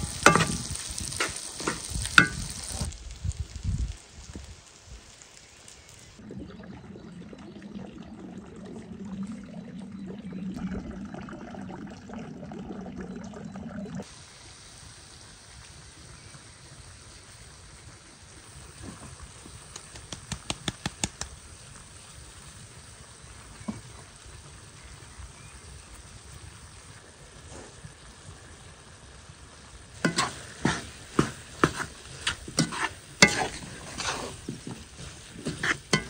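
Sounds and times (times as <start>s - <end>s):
liquid pouring: 6.2s - 14.0s.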